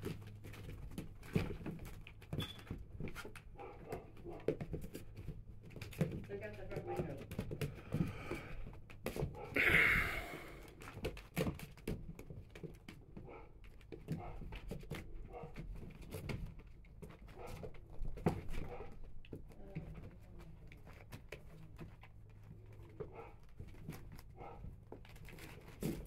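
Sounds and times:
puppies scrabbling on plastic: 0.0 - 9.7, 10.6 - 26.0
small puppy noises: 3.2 - 5.0, 9.2 - 10.8, 13.1 - 16.0, 17.0 - 25.4.

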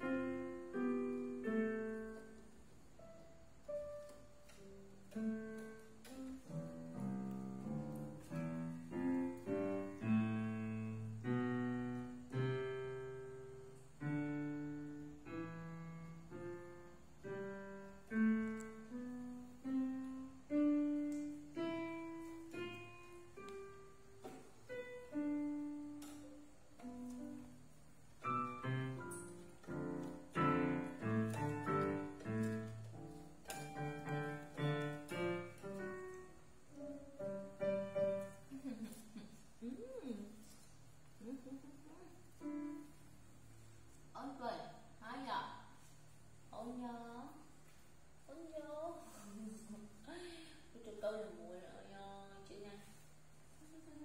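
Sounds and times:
electronic keyboard piano melody: 0.0 - 38.5.

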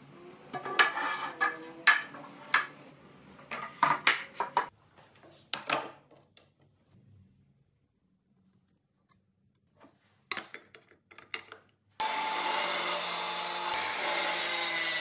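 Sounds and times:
wooden boards knocking on concrete: 0.6 - 2.7, 3.5 - 4.7.

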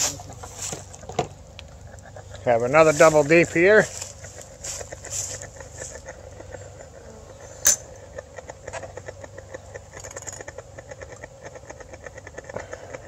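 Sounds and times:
crackling ticks: 0.9 - 2.5, 8.0 - 13.0.

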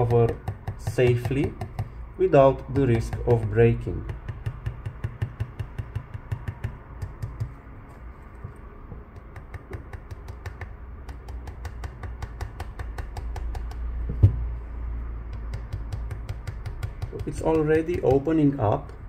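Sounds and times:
loud knock: 14.1 - 14.5.

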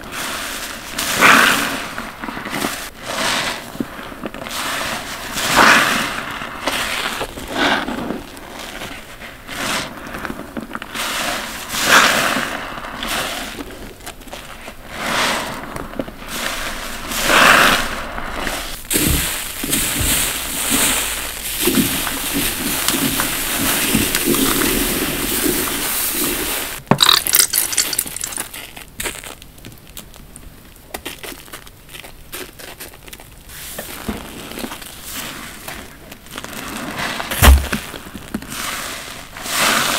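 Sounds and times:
soapy sponge squelching: 4.5 - 28.6.

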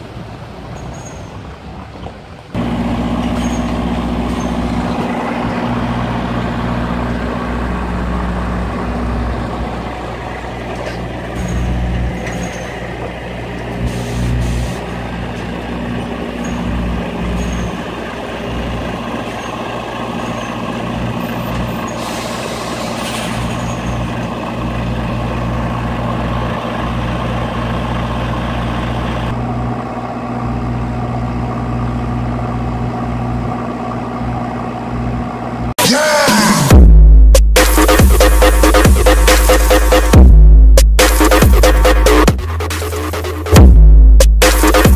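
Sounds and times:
lorry diesel engine idling: 0.0 - 35.8
air brake hiss: 13.8 - 14.8, 21.8 - 23.7.

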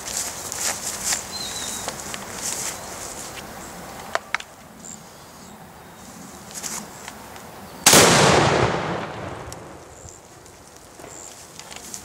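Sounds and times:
loud shotgun blast echoing: 7.9 - 9.9.

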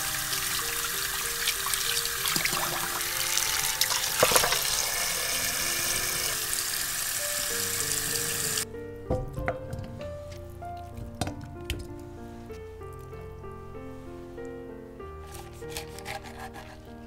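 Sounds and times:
tap water running into metal bowl: 0.0 - 8.6
background music: 0.0 - 17.0.

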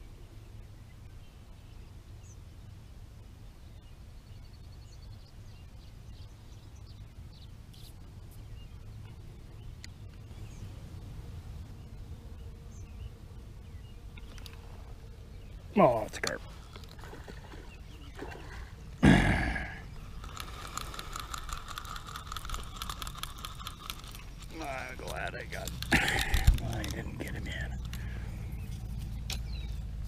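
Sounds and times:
birds chirping: 3.4 - 30.0
steady low rumble: 24.2 - 30.0.

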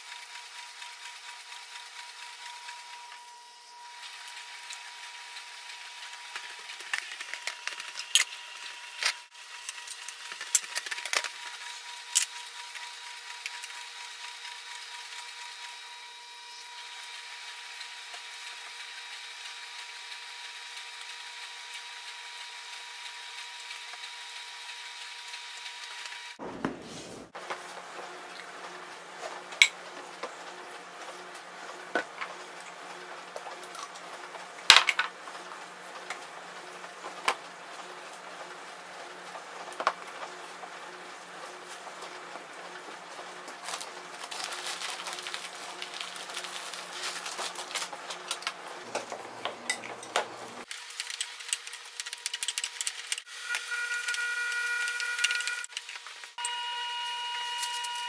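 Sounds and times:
utensils clicking on counter: 50.8 - 53.3.

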